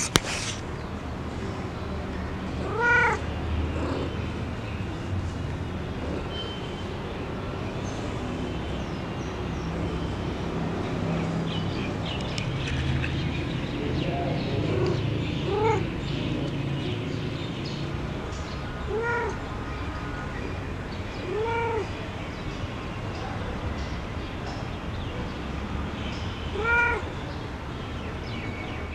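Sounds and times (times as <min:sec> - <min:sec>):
cat meowing: 0:02.6 - 0:03.2, 0:14.8 - 0:15.9, 0:18.9 - 0:19.4, 0:21.2 - 0:21.9, 0:26.5 - 0:27.1.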